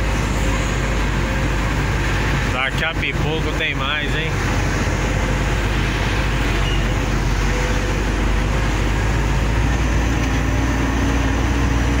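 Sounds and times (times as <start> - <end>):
steady hum: 0.0 - 10.1
road noise: 0.0 - 12.0
truck diesel engine rumble: 0.0 - 12.0.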